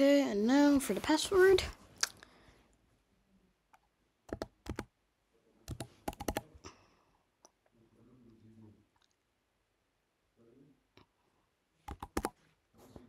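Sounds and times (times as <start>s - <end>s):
keyboard keys clicking: 4.3s - 4.9s, 5.7s - 6.4s, 11.9s - 12.3s.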